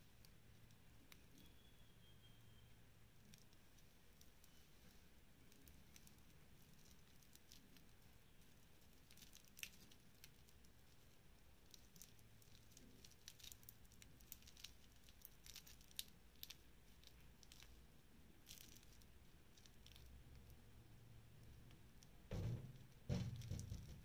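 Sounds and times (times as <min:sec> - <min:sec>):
plastic film crinkling: 0:03.2 - 0:20.6.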